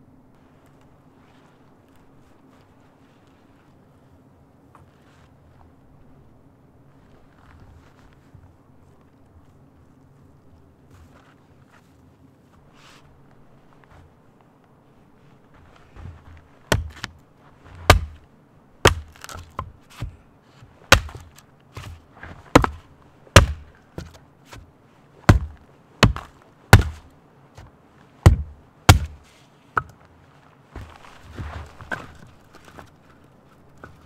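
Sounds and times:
hatchet chopping wood: 16.7s - 18.2s, 18.8s - 20.2s, 20.9s - 29.2s.

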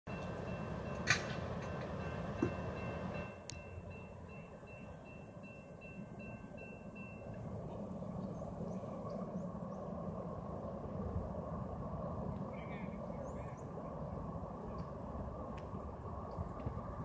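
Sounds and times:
crossing warning bell dinging: 0.1s - 7.8s
low steady rumble: 0.1s - 17.0s.

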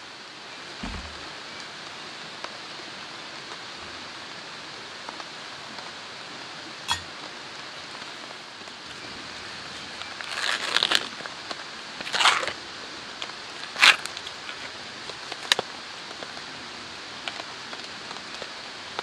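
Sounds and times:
flowing water: 0.0s - 19.0s
foil pouch crinkling: 9.8s - 11.3s, 12.0s - 12.6s, 13.6s - 15.6s.

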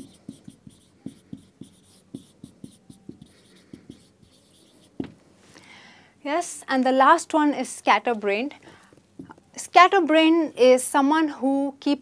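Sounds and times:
marker writing on whiteboard: 0.0s - 5.1s.

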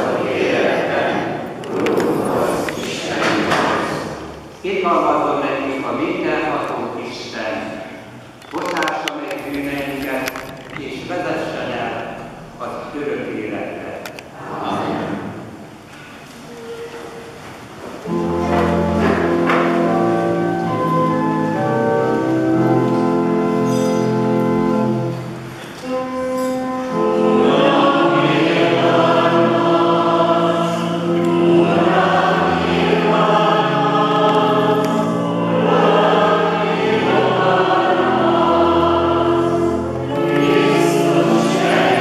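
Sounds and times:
choir singing: 0.0s - 3.6s, 14.4s - 15.4s, 26.8s - 42.0s
organ playing: 18.0s - 42.0s.

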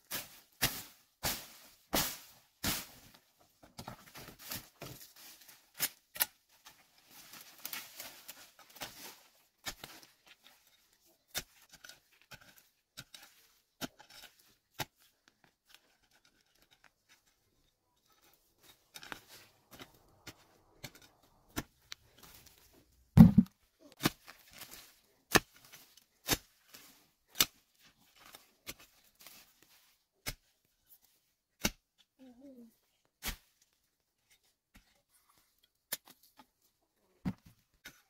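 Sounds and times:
crunching and scraping of soil: 0.0s - 38.0s
hoe striking soil: 23.2s - 24.2s.

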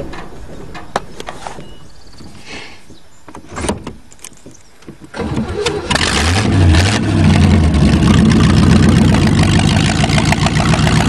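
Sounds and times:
car engine starter cranking: 5.1s - 8.6s
car engine running: 5.9s - 11.0s.

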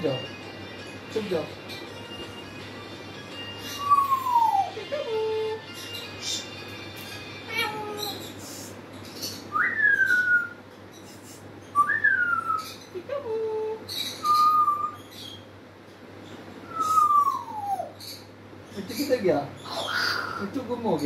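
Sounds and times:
parrot whistling: 3.6s - 4.8s, 9.5s - 10.6s, 11.7s - 12.8s, 14.1s - 15.1s, 16.6s - 18.0s.

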